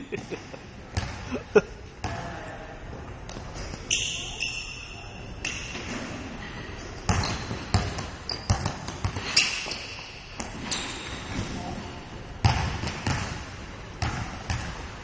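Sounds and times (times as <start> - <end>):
sneakers squeaking on gym floor: 3.3 - 11.9
basketball bouncing on floor: 7.1 - 9.3, 12.4 - 13.4, 14.0 - 14.8.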